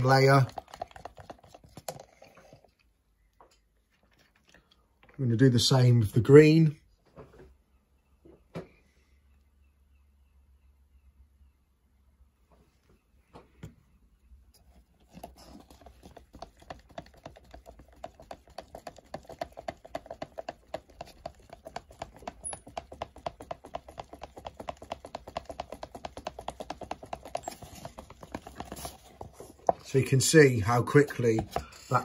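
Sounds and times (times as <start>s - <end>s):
stick scraping inside plastic cup: 0.0s - 2.9s, 14.6s - 32.0s.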